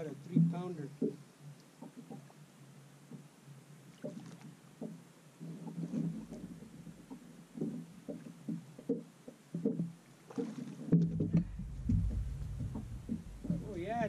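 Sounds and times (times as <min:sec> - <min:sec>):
low rumble: 0:11.1 - 0:14.0.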